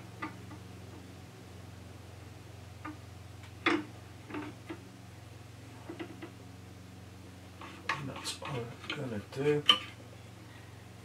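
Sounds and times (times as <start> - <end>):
steady low hum: 0.0 - 11.0
light metallic clicks and knocks: 7.6 - 10.0.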